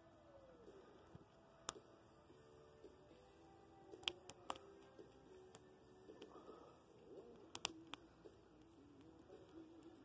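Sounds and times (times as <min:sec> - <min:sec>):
wood fire crackling: 0:03.9 - 0:10.0
sharp crackling pop: 0:07.5 - 0:08.0.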